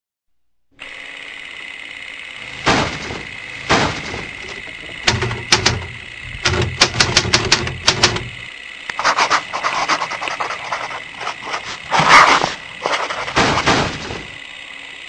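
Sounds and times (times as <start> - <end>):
sharp clicks and hits: 2.6 - 14.4.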